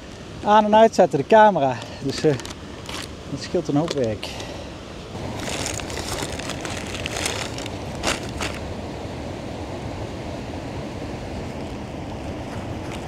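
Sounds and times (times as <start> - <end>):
rushing background noise: 0.0 - 13.0
bread bag rustling: 1.8 - 4.4, 5.2 - 8.7
sharp plastic crackles: 1.9 - 3.2, 3.8 - 4.2, 5.3 - 8.6.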